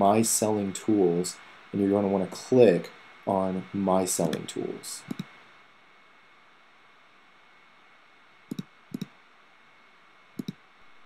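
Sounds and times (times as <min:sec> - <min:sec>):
faint steady hiss: 0:00.0 - 0:11.0
computer mouse clicking: 0:04.2 - 0:04.4, 0:05.0 - 0:05.4, 0:08.5 - 0:09.1, 0:10.4 - 0:10.6.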